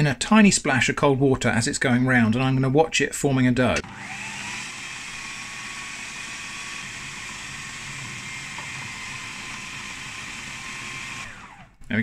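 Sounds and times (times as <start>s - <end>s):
food processor motor running: 3.8s - 11.8s.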